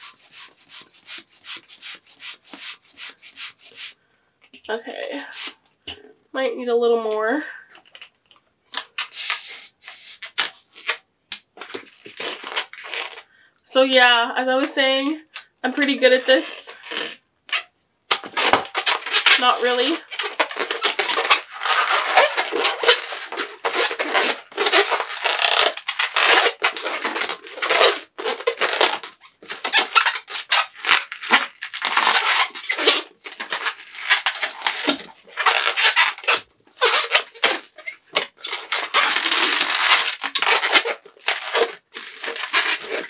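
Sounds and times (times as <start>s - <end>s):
rubber balloon squeaking: 0.0s - 4.0s, 5.3s - 5.6s, 9.0s - 11.0s, 16.8s - 43.0s.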